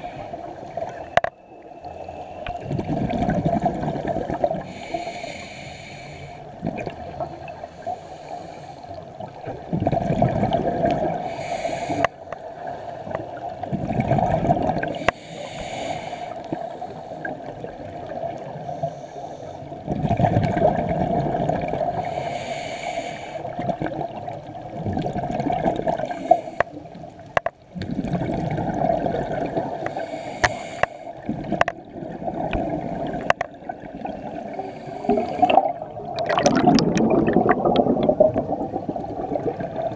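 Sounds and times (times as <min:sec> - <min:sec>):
regulator hissing inhale: 0:00.0 - 0:00.6, 0:04.6 - 0:06.6, 0:07.2 - 0:09.1, 0:11.2 - 0:12.2, 0:14.9 - 0:17.3, 0:18.6 - 0:19.8, 0:22.0 - 0:23.6, 0:25.9 - 0:26.9, 0:29.8 - 0:31.2, 0:34.4 - 0:35.8
gurgling exhaled bubbles: 0:02.6 - 0:04.7, 0:09.2 - 0:11.3, 0:13.4 - 0:15.0, 0:19.8 - 0:22.0, 0:23.5 - 0:26.2, 0:27.7 - 0:30.0, 0:31.2 - 0:39.9.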